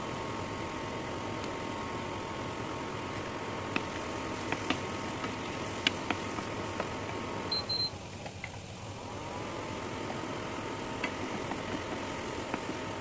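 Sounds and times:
steady hum: 0:00.0 - 0:13.0
onion paste frying: 0:00.1 - 0:13.0
spatula tapping pan: 0:03.8 - 0:07.0
high double beep: 0:07.5 - 0:07.9.

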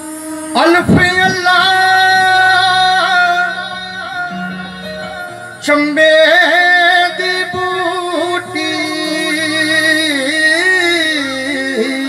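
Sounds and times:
man singing through a pa: 0:00.5 - 0:12.0
steady keyboard tone: 0:00.8 - 0:12.0.

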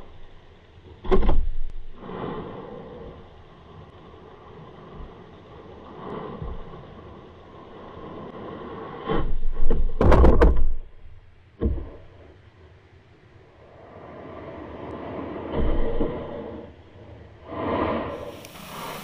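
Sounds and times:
muffled underwater thuds and knocks: 0:01.0 - 0:01.6, 0:09.1 - 0:10.9, 0:11.6 - 0:12.1
low underwater rumble: 0:13.7 - 0:19.0.

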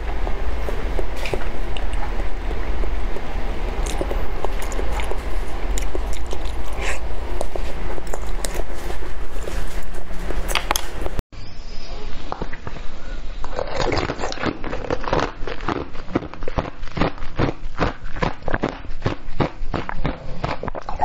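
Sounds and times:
low hum: 0:00.0 - 0:19.0
wet chewing and sucking: 0:00.1 - 0:11.2, 0:12.3 - 0:21.0
mouth smacks and clicks: 0:01.2 - 0:02.4, 0:03.1 - 0:08.6, 0:13.4 - 0:21.0.

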